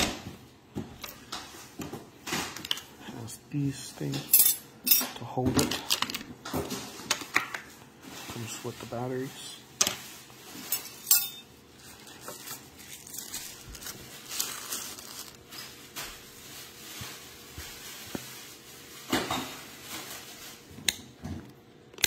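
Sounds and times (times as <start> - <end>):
wrapping sheet rustling: 7.6 - 20.8.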